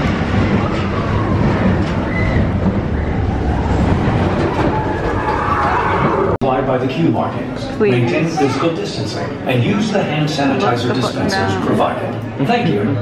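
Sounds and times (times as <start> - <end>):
roller coaster rumble and clatter: 0.0 - 7.8.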